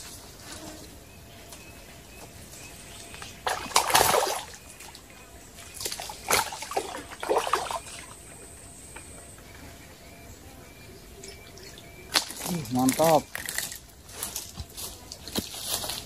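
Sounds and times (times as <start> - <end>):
water splashing in a stream: 3.0 - 8.5, 11.4 - 13.8.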